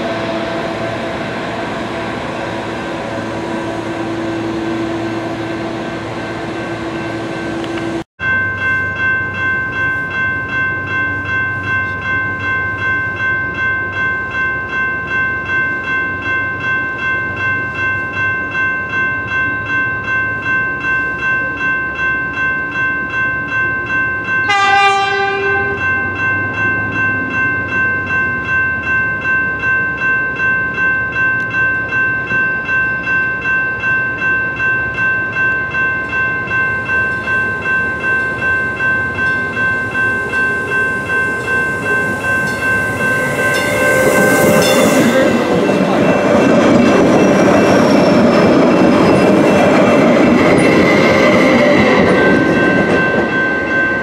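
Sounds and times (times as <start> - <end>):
crossing bell ringing: 0.0 - 54.0
train horn blast: 24.5 - 26.1, 42.9 - 45.8.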